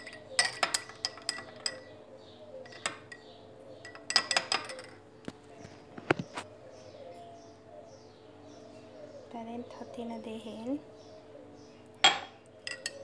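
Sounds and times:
spoon clinking against glass: 0.0s - 1.9s, 2.7s - 5.0s, 12.0s - 13.0s.

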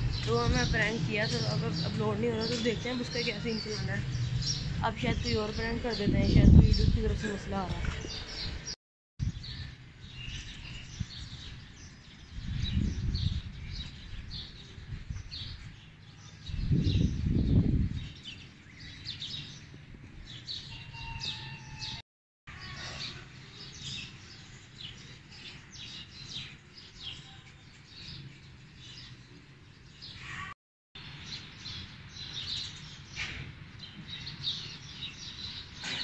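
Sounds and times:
wind buffeting microphone: 0.0s - 9.6s, 10.3s - 18.4s
small birds chirping: 0.0s - 22.0s, 22.6s - 36.0s.

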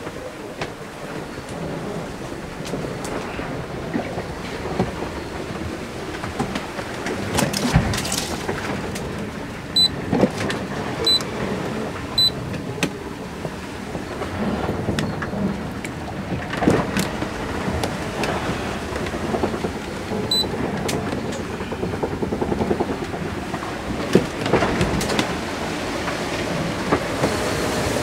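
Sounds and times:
water and wind rushing: 0.0s - 28.0s
short electronic beeps: 12.2s - 12.4s.

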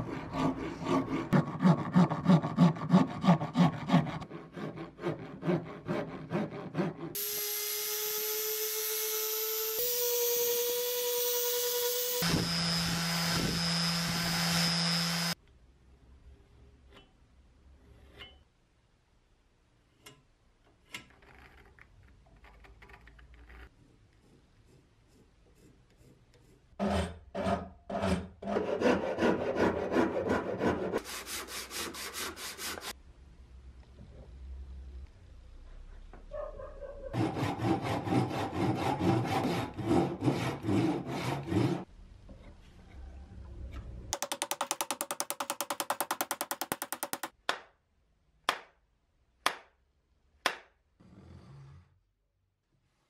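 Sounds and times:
rasp scraping wood: 0.0s - 7.2s, 37.2s - 41.9s
electric sander sanding wood: 7.2s - 15.4s.

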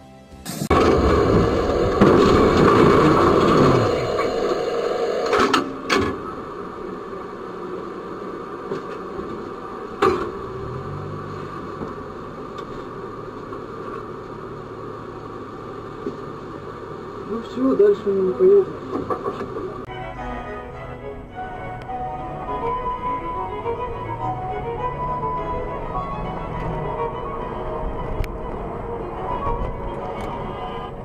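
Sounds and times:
metal grinding and scraping: 0.7s - 5.6s.

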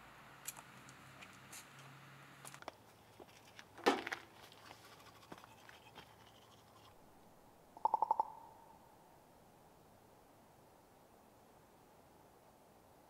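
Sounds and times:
bird rattling call: 7.8s - 8.6s.

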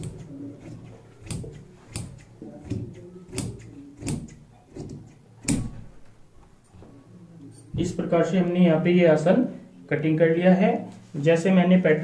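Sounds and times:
shears snipping fabric: 0.0s - 5.7s.

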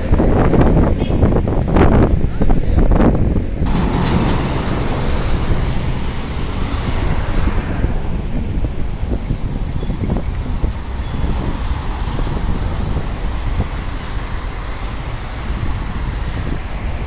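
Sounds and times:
road traffic passing: 0.0s - 17.0s
wind buffeting microphone: 0.0s - 17.0s
passing vehicle tyre noise: 3.6s - 17.0s.

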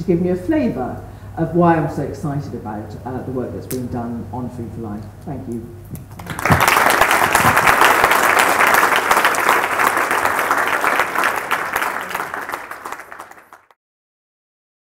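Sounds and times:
audience applauding: 6.1s - 13.8s.

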